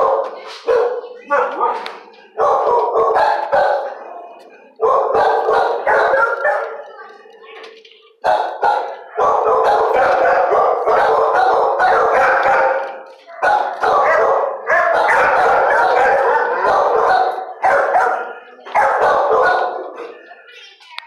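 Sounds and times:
many dogs barking: 0:00.0 - 0:06.9, 0:08.2 - 0:20.4.

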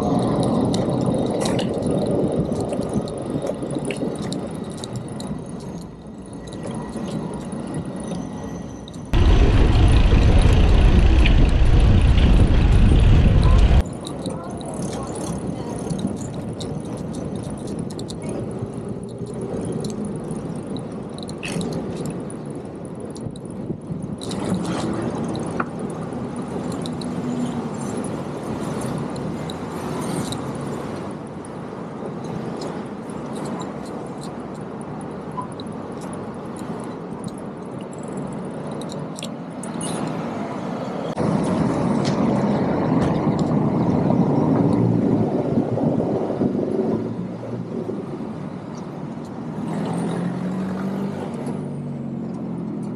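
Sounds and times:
vehicles passing: 0:00.0 - 0:23.3, 0:24.2 - 0:52.9.

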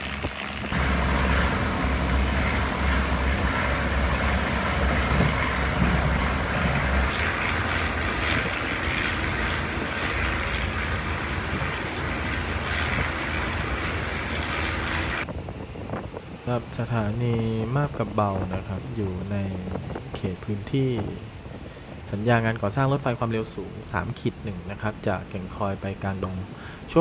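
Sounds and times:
wheels on rails: 0:00.0 - 0:15.3
railcar engine: 0:00.0 - 0:16.5.

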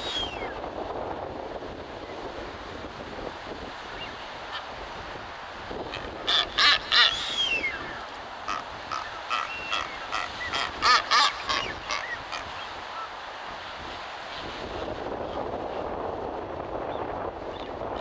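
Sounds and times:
birds making short repeated calls: 0:06.3 - 0:13.1.

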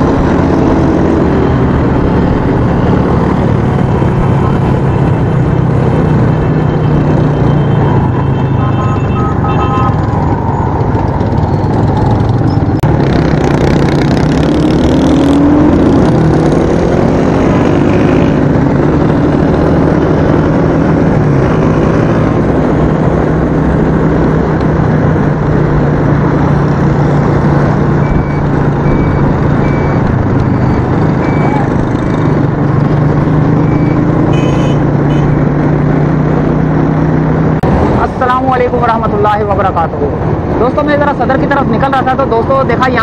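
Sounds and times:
heavy wind noise: 0:00.0 - 0:43.0
road traffic: 0:00.0 - 0:43.0
short beeps: 0:28.0 - 0:31.7, 0:33.6 - 0:34.7.

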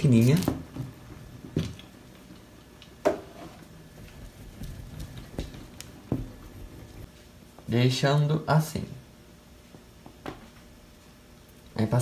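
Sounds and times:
hand rolling clay on tabletop: 0:03.1 - 0:07.1.

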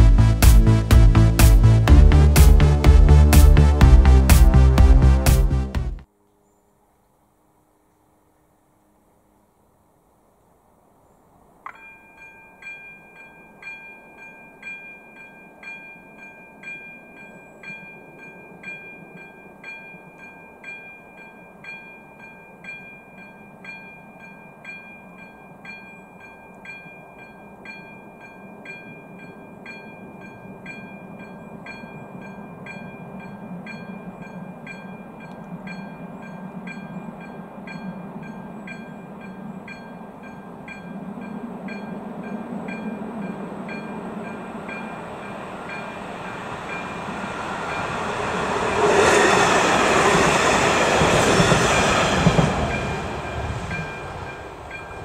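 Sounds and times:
train rumble: 0:00.0 - 0:06.1, 0:12.6 - 0:55.0.

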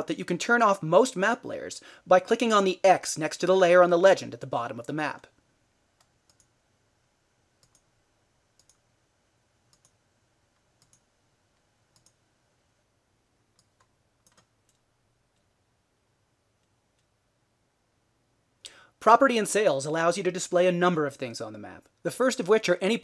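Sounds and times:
computer mouse clicks: 0:06.0 - 0:06.5, 0:07.6 - 0:07.9, 0:08.6 - 0:08.8, 0:09.7 - 0:10.0, 0:10.6 - 0:11.1, 0:11.9 - 0:12.2, 0:13.5 - 0:15.5.

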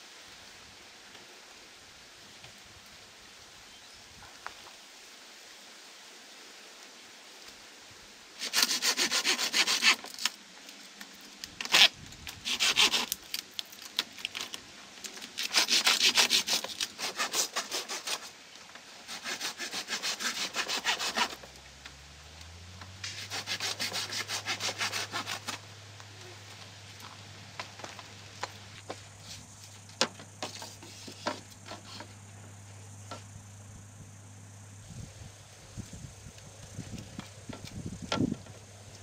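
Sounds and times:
hand saw cutting bamboo: 0:08.4 - 0:10.3, 0:11.6 - 0:13.2, 0:15.4 - 0:18.4, 0:19.0 - 0:21.5, 0:23.0 - 0:25.6.

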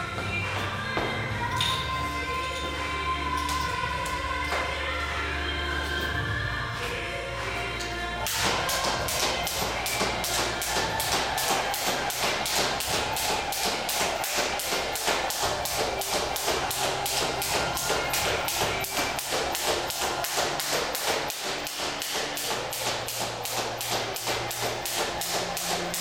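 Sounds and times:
skipping rope hitting floor: 0:08.3 - 0:26.0.

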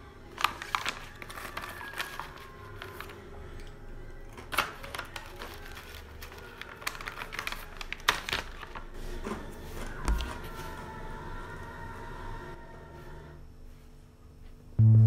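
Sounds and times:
soft steady music tones: 0:09.5 - 0:15.0.

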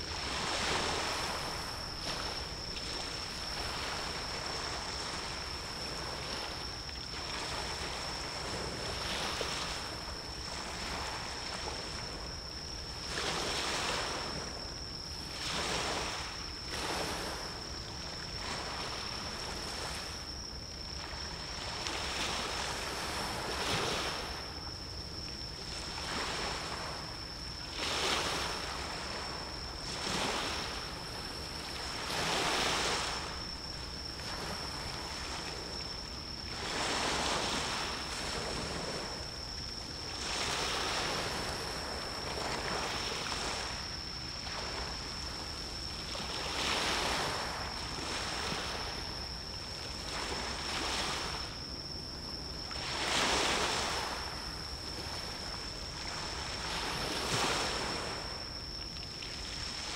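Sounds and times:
sea waves breaking: 0:00.0 - 0:12.2, 0:27.6 - 0:35.8, 0:52.7 - 0:58.4
steady high-pitched whine: 0:00.0 - 0:59.9.

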